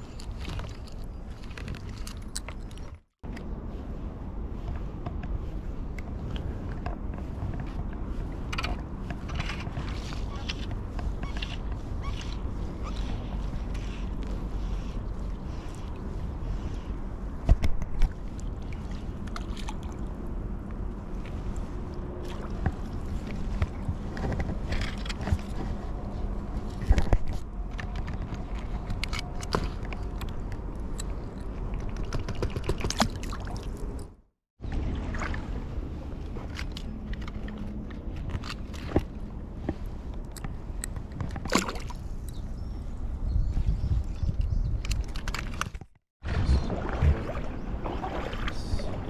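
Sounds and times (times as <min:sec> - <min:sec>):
wind on the microphone: 0:42.0 - 0:49.0.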